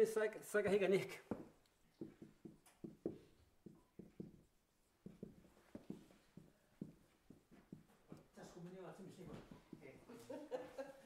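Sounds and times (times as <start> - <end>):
marker writing on whiteboard: 1.3 - 10.1.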